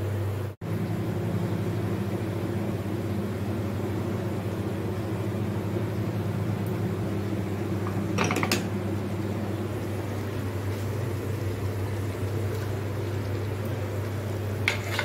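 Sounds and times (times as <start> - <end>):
low machine hum: 0.0 - 15.0
kitchenware clicking: 8.1 - 8.7.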